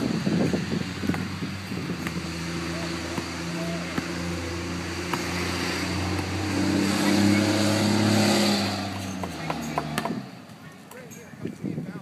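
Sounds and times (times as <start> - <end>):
motor engine humming: 0.0 - 11.0.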